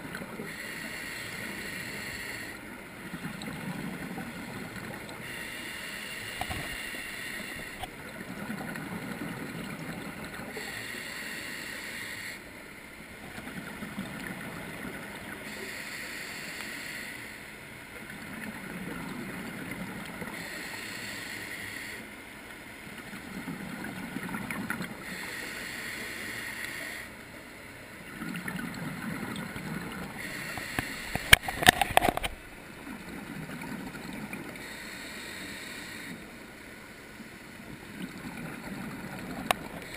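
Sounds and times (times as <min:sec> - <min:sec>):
diver breathing through regulator: 0:00.4 - 0:02.6, 0:05.2 - 0:07.9, 0:10.5 - 0:12.5, 0:15.4 - 0:17.5, 0:20.3 - 0:22.1, 0:25.0 - 0:27.2, 0:30.1 - 0:32.2, 0:34.5 - 0:36.3.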